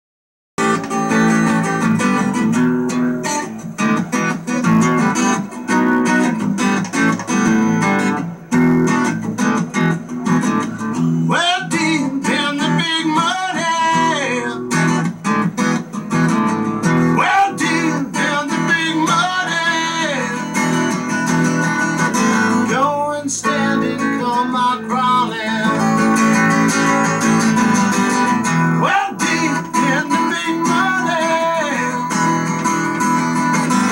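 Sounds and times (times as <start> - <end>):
acoustic guitar blues: 0.6 - 33.9.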